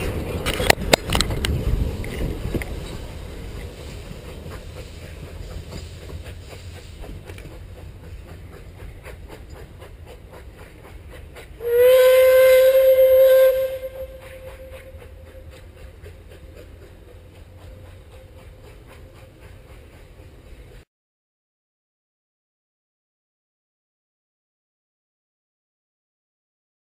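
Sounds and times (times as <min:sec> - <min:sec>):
train rhythmic beat: 0:00.0 - 0:20.8
steam locomotive whistle: 0:11.6 - 0:15.6.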